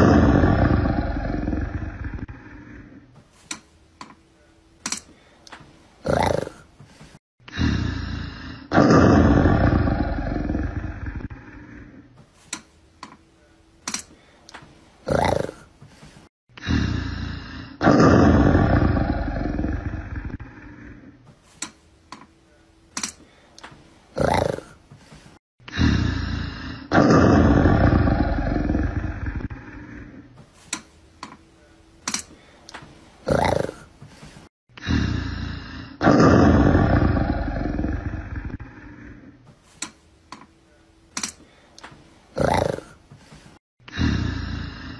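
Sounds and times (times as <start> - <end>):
loud rough roar: 0.0 - 2.4
big cat growling and roaring: 0.0 - 3.1, 6.0 - 6.7, 7.5 - 12.1, 15.0 - 15.7, 16.6 - 21.2, 24.1 - 24.8, 25.7 - 30.3, 33.2 - 33.9, 34.8 - 39.4, 42.3 - 43.0.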